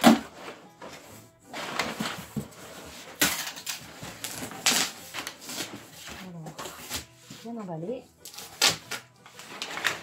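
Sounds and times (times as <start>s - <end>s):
packing paper rustling: 1.6s - 7.2s.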